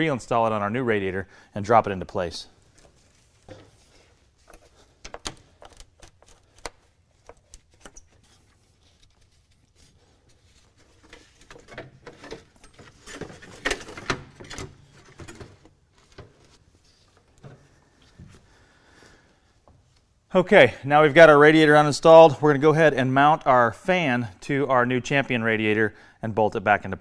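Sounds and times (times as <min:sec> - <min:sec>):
rustling and clunks: 0:02.7 - 0:18.5
clicks and knocks of hands working: 0:04.5 - 0:08.3, 0:10.8 - 0:16.3.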